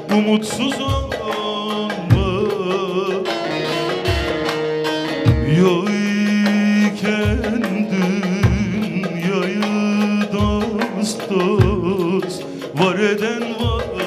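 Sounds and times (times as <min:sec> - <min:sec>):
man singing with ornamented voice: 0:00.0 - 0:04.4, 0:05.2 - 0:14.0
long-necked lute playing: 0:00.0 - 0:14.0
low drum beats: 0:00.0 - 0:14.0.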